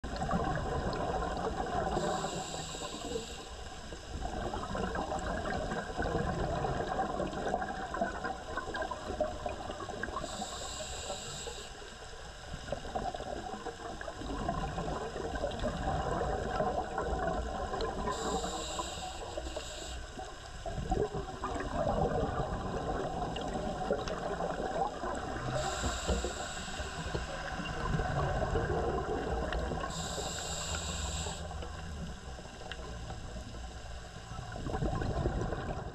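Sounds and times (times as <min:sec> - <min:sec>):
regulator inhalation hiss: 0:02.0 - 0:03.7, 0:10.2 - 0:12.0, 0:18.1 - 0:20.2, 0:25.5 - 0:27.5, 0:29.8 - 0:31.6
bubbling exhaust: 0:20.7 - 0:32.4, 0:34.5 - 0:35.9.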